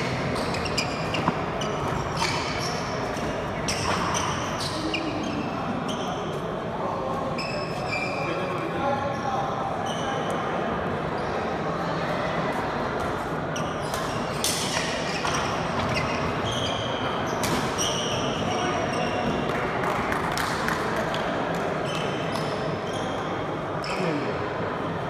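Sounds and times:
background chatter: 0.0 - 25.0
shoes squeaking on wooden floor: 0.4 - 6.2, 15.1 - 16.9.

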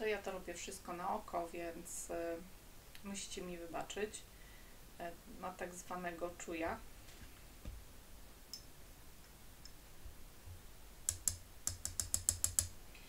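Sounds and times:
mixing tool clicking against glass cup: 11.1 - 12.7.

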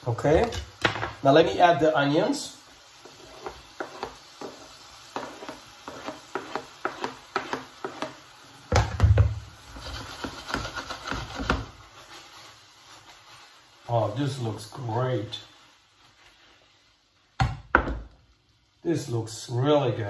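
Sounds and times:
onions sizzling in a pan: 0.0 - 20.0
onions scraped off cutting board: 3.0 - 8.3, 9.6 - 12.5.

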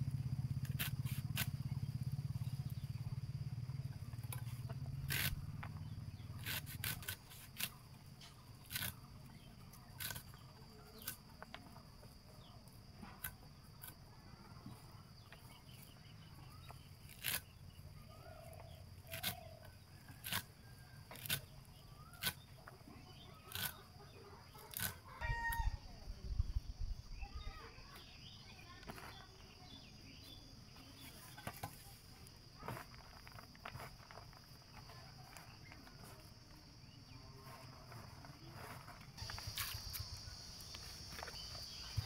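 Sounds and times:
blade slicing leafy greens: 0.5 - 1.7, 4.2 - 11.7, 16.6 - 17.8, 18.5 - 22.7, 23.4 - 23.9, 24.5 - 25.1, 37.3 - 42.0.

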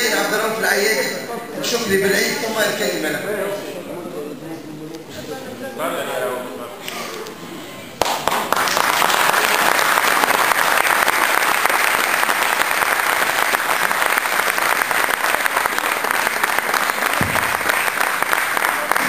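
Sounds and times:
crowd applauding: 8.0 - 19.0.

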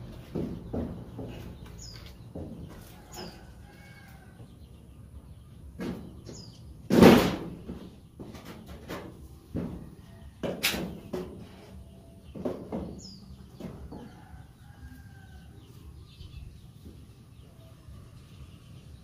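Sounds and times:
bamboo poles and branches clattering: 6.9 - 11.7.

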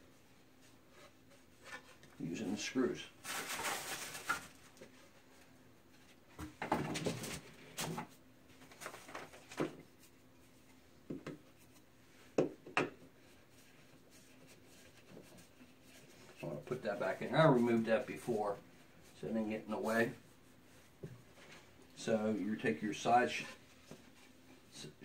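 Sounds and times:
rustling scrape: 3.1 - 5.4.

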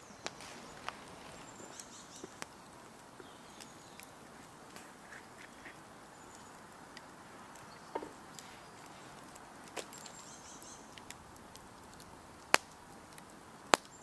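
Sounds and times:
faint bird calls: 0.0 - 11.0
campfire coals crackling: 0.0 - 14.0.

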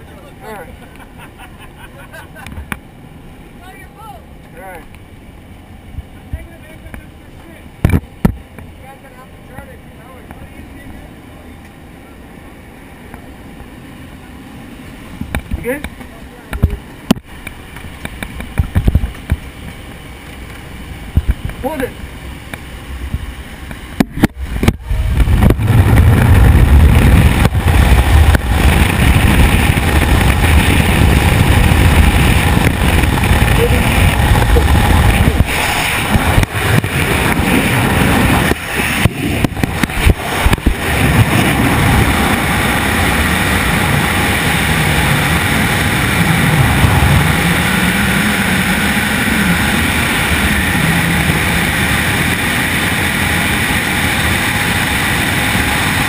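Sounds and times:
plane engine: 0.0 - 56.0
rush of freefall wind: 0.0 - 56.0
wind buffeting microphone: 16.5 - 56.0.

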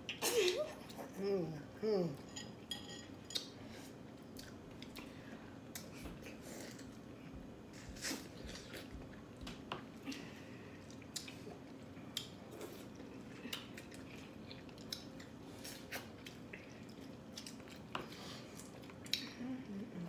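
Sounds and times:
wet chewing and mouth smacks: 7.7 - 19.3.

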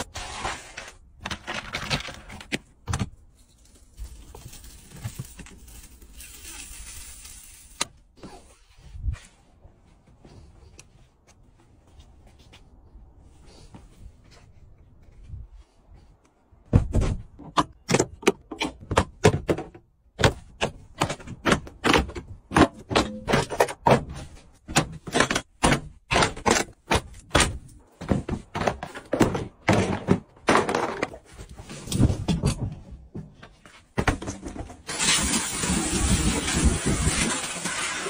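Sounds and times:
thuds and knocks of car trim: 16.6 - 17.3.

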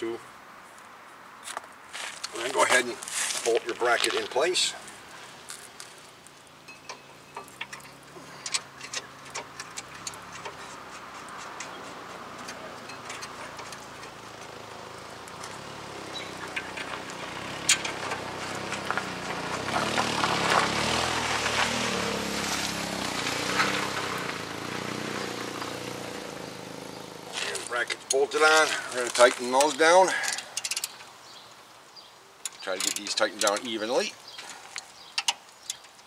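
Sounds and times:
passing vehicle engine: 7.4 - 29.2.

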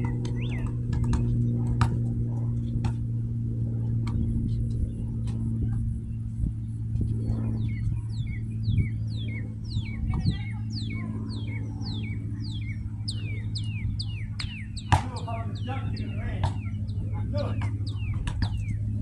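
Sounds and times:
songbird whistling: 0.0 - 1.1, 7.6 - 17.0, 17.6 - 18.9
steady low hum: 0.0 - 19.0.

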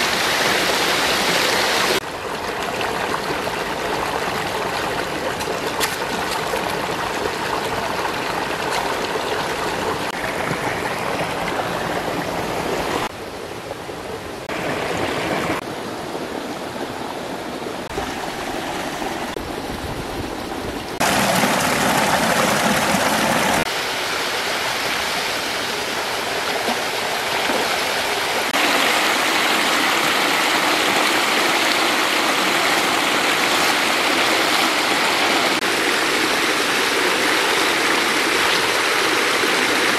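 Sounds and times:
stream running over rocks: 0.0 - 39.9.

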